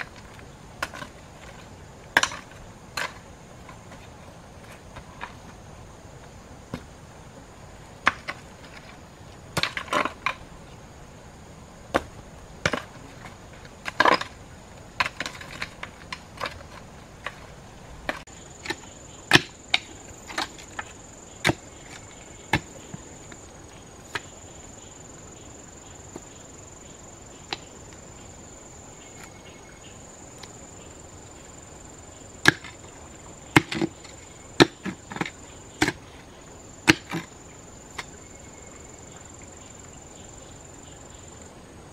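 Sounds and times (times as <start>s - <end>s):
high insect drone: 0.0s - 41.9s
digging tool striking stony soil: 11.9s - 13.0s, 18.0s - 23.0s, 32.4s - 32.8s, 33.5s - 36.0s, 36.8s - 37.3s.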